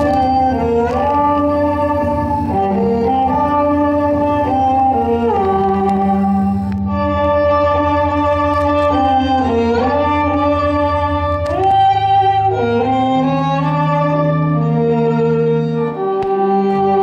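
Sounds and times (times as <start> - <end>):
low pulsing bass note: 0.0 - 8.6
bowed strings sustained chords: 0.0 - 17.0.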